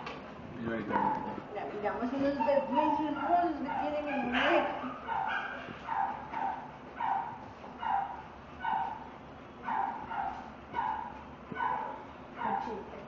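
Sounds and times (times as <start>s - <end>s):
dog whimpering: 2.0s - 5.3s.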